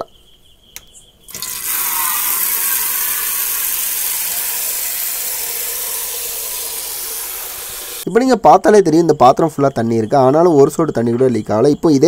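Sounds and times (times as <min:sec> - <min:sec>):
tap water running into metal pot: 0:01.3 - 0:08.0.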